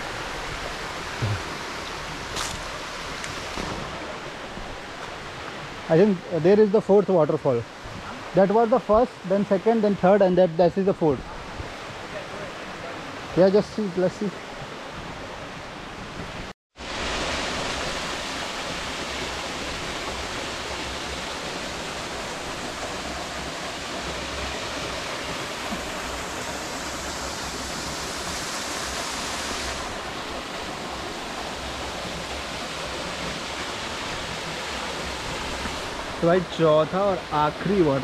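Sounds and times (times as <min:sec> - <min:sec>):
waterfall splashing into pool: 0:00.0 - 0:05.6, 0:16.8 - 0:38.0.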